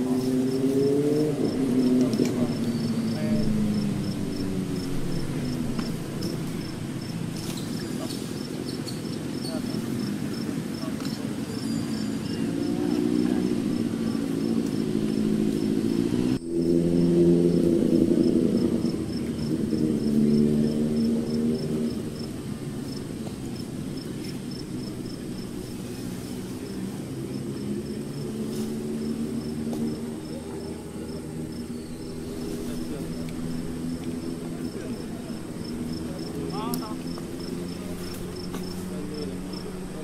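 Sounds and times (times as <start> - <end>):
crickets chirping: 0.0 - 40.0
low droning hum: 1.4 - 7.8, 12.4 - 27.0.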